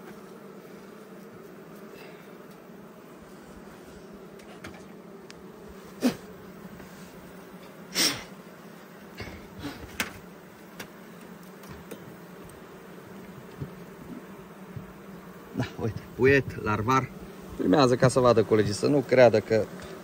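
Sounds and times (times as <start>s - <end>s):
honey bees buzzing: 0.0s - 20.0s
hive tool knocking on wood: 9.2s - 12.6s, 13.2s - 15.0s.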